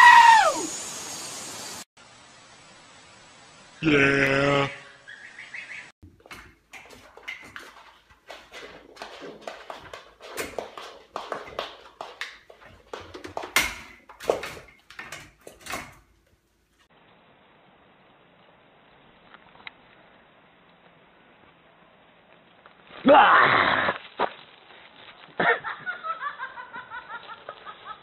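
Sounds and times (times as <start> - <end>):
hooves clattering on wooden floor: 6.0 - 16.0.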